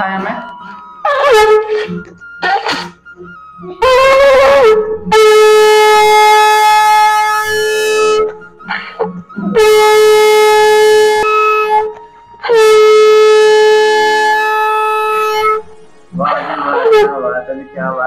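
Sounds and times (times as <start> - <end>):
conch shell blasts: 3.8 - 8.3, 9.5 - 15.8.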